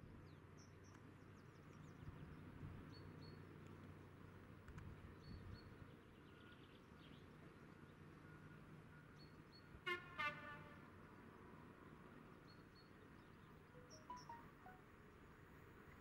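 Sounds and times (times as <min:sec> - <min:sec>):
distant train horn toots: 0:09.9 - 0:10.9
faint bird chirps: 0:12.5 - 0:14.8.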